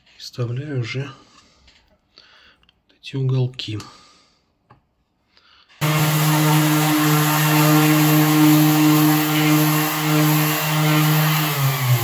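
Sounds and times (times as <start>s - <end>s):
orbital sander on wood: 5.8s - 12.0s.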